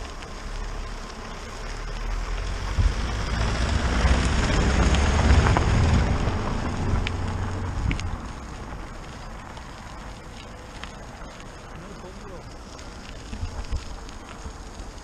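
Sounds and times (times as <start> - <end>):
car engine rumble: 0.0 - 15.0
tyres on gravel: 0.0 - 15.0
wind buffeting microphone: 12.5 - 15.0.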